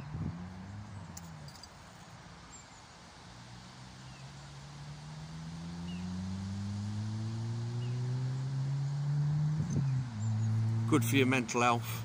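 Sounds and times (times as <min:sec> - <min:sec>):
distant engine droning: 0:03.2 - 0:12.0.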